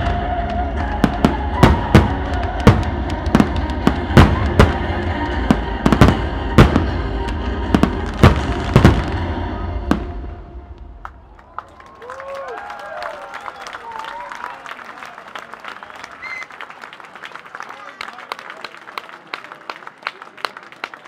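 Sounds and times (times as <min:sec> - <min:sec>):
music playing: 0:00.0 - 0:11.2
fireworks rumble and crackle: 0:00.0 - 0:11.7.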